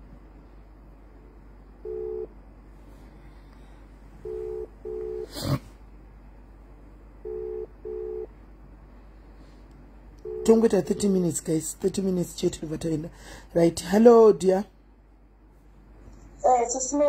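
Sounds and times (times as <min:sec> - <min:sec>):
telephone ringback double beep: 0:07.3 - 0:08.3.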